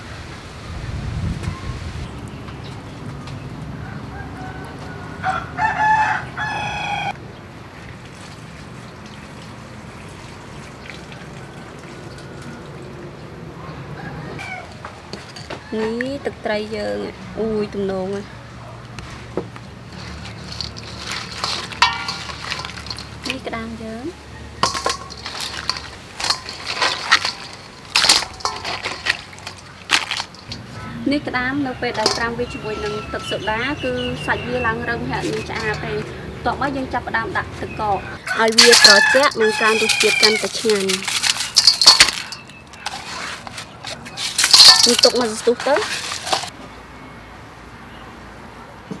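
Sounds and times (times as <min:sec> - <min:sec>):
rooster crowing: 0:03.8 - 0:07.2, 0:13.8 - 0:14.8, 0:38.1 - 0:40.6
crab shells crackling in a bowl: 0:19.8 - 0:23.5, 0:24.5 - 0:30.8, 0:38.3 - 0:46.6.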